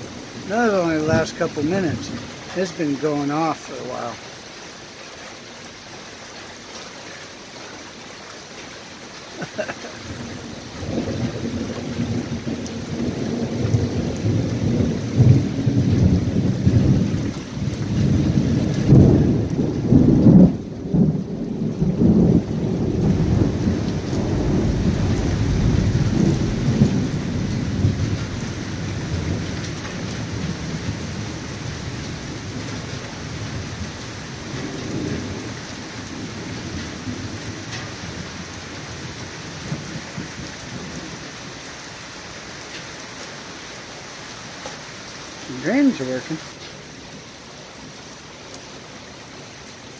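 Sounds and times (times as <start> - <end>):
steady rain: 0.0 - 49.9
rolling thunder: 9.9 - 41.2.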